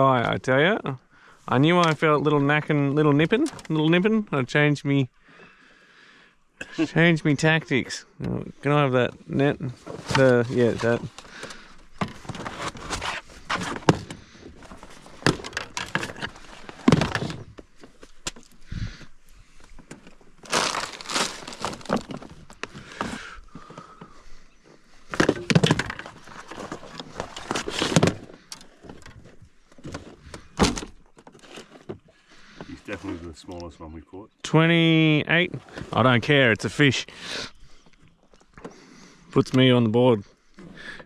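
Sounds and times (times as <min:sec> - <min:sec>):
fishing gear knocking and rustling: 0:09.1 - 0:32.8.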